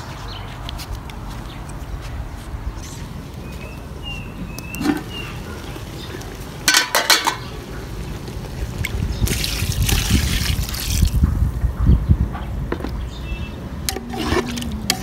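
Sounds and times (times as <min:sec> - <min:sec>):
water pouring into metal pot: 0:08.8 - 0:11.1.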